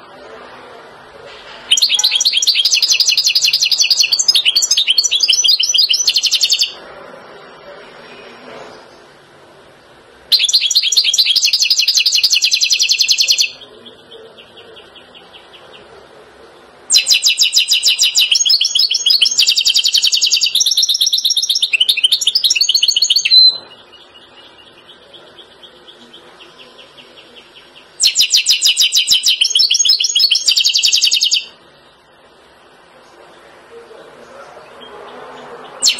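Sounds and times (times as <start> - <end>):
bird twittering song with trills: 1.7 - 6.8, 10.3 - 15.9, 16.9 - 31.6, 34.8 - 35.9.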